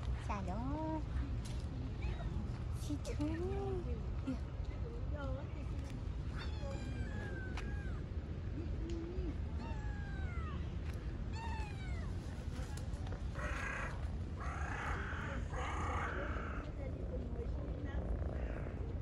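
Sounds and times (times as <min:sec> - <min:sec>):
cats meowing: 0:06.3 - 0:08.1, 0:09.2 - 0:12.3.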